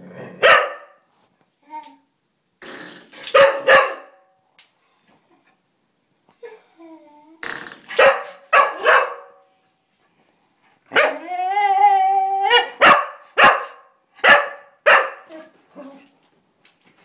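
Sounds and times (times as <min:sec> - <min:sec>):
puppy barking: 0:00.4 - 0:01.0, 0:03.3 - 0:04.3, 0:08.0 - 0:09.4, 0:12.5 - 0:15.3.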